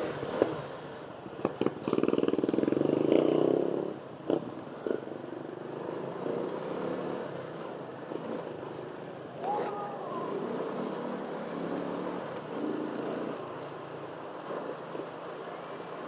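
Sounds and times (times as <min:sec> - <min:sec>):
motorcycle engine revving: 0:01.4 - 0:08.6, 0:10.3 - 0:15.4.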